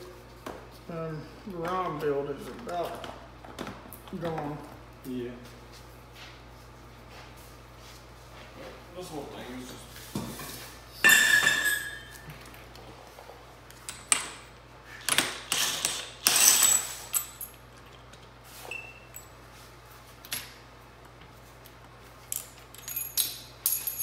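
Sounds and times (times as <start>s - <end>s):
loud metal clank with ringing: 11.0s - 12.2s.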